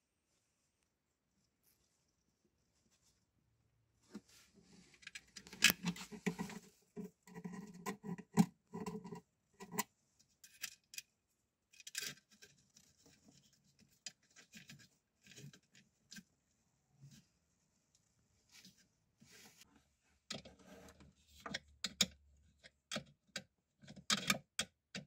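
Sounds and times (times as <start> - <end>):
wire scratching and rustling: 4.3 - 9.8.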